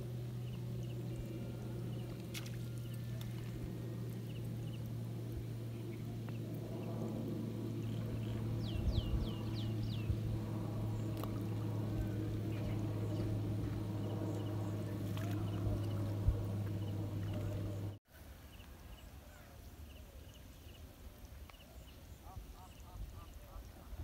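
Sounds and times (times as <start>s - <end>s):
motor humming: 0.0s - 18.0s.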